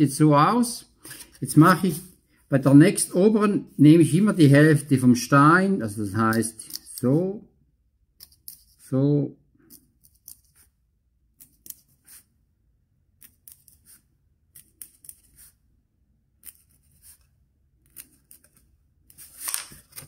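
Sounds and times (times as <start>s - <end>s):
pencil scratching foam: 9.7s - 10.8s, 11.4s - 12.4s, 13.2s - 15.7s, 16.4s - 19.5s.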